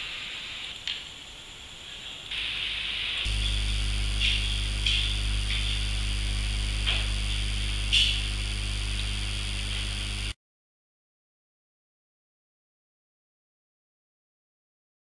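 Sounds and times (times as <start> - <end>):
electrical hum: 0.0 - 10.4
high buzzing hiss: 0.0 - 10.4.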